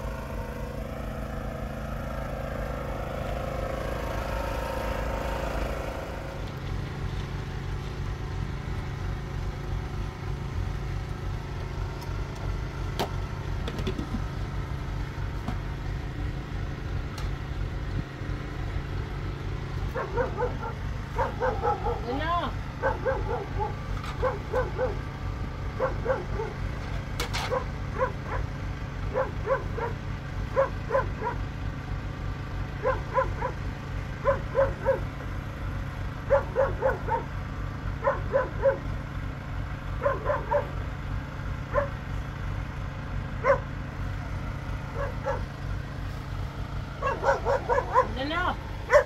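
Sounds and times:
dog barking: 19.9 - 22.2, 22.8 - 25.0, 25.8 - 26.6, 27.4 - 28.5, 29.1 - 31.4, 32.8 - 33.6, 34.2 - 35.1, 36.3 - 37.3, 38.0 - 38.9, 40.0 - 40.7, 41.7 - 42.0, 43.4 - 43.7, 44.9 - 45.5, 47.0 - 48.3.

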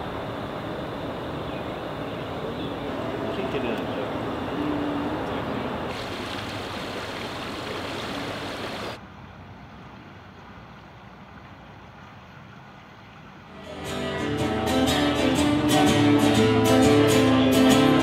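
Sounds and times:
outdoor rushing hiss: 5.9 - 9.0.

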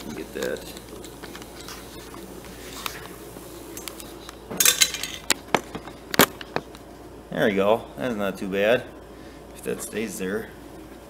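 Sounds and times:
faint hum: 0.0 - 11.0.

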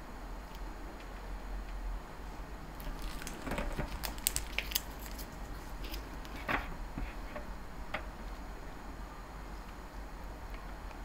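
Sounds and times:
plastic piping bags crinkling: 2.7 - 6.0.

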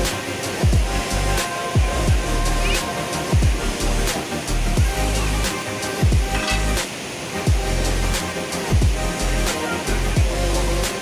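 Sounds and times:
deep bass notes: 0.0 - 2.8, 3.4 - 6.8
bass drum hits: 6.0 - 6.4.

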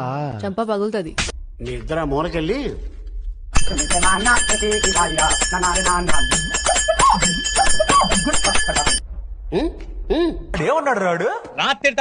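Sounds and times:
bell ringing rapidly: 3.6 - 9.0.

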